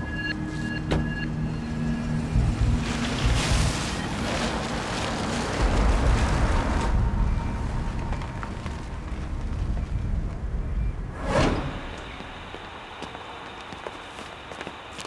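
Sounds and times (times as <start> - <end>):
wind rushing with low rumble: 1.8 - 13.0.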